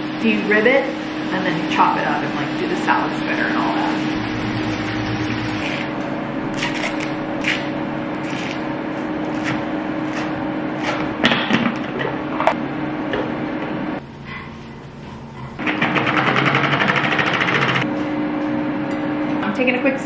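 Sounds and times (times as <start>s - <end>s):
steady hum: 0.0s - 20.0s
knife chopping on cutting board: 9.3s - 11.8s.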